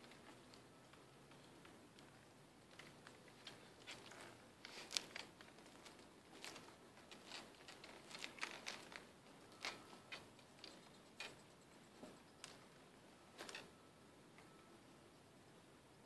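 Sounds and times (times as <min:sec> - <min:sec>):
metal stilts clicking on dry grass: 0:02.7 - 0:11.5, 0:13.4 - 0:13.7.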